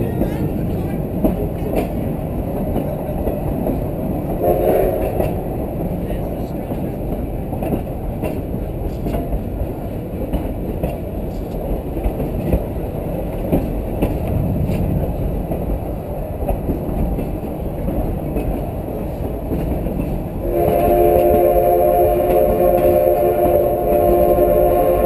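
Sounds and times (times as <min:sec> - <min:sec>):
train wheels rumbling on track: 0:00.0 - 0:25.0
steam whistle: 0:04.4 - 0:05.2, 0:20.4 - 0:25.0.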